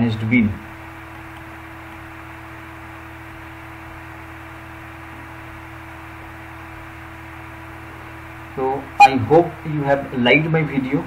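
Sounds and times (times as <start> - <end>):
low hum: 2.5 - 9.6
faint steady tone: 9.0 - 9.4.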